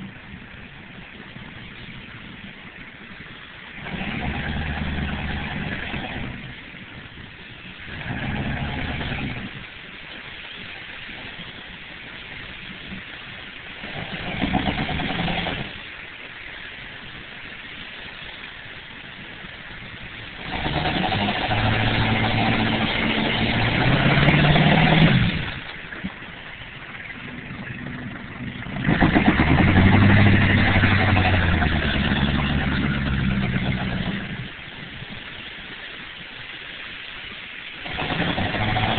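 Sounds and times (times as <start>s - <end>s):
steady hiss: 0.0s - 38.9s
car engine revving: 3.8s - 6.6s, 7.9s - 9.6s, 13.8s - 15.8s, 20.3s - 25.7s, 27.0s - 34.7s, 37.8s - 38.9s.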